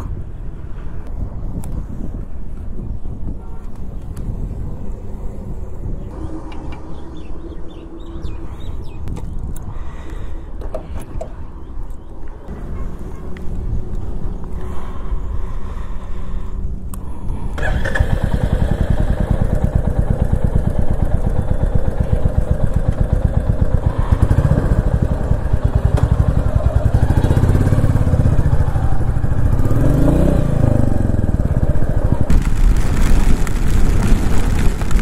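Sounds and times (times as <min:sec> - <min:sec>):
motorcycle engine revving: 0:17.6 - 0:35.0.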